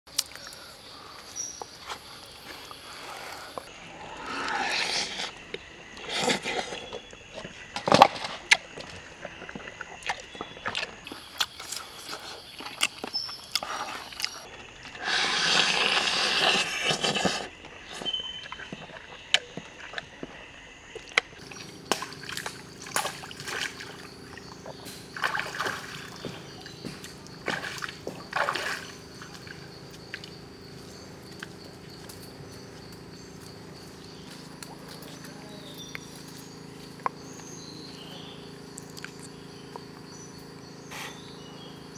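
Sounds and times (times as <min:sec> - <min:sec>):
chewing and crunching: 0:07.9 - 0:15.0, 0:15.9 - 0:41.2
low hum: 0:21.4 - 0:41.9.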